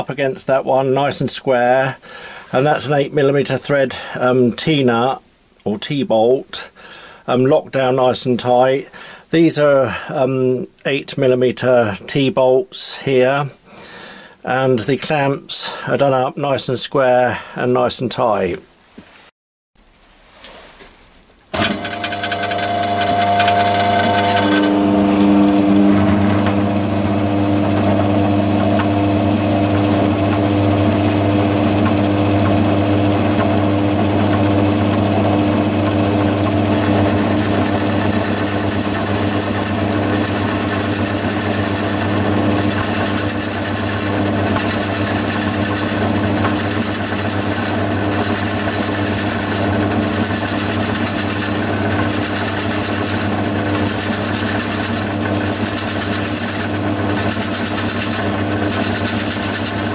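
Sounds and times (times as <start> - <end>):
lathe motor humming: 21.5 - 59.9.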